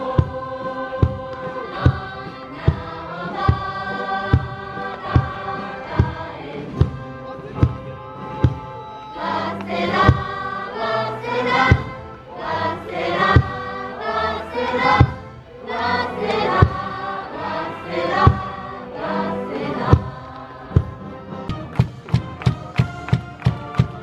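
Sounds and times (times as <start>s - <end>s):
big drum strikes: 0.0s - 8.8s, 10.0s - 10.5s, 13.2s - 13.7s, 18.2s - 18.6s
students singing a cheer song: 0.0s - 21.8s, 22.4s - 24.0s
brass band playing: 0.0s - 24.0s.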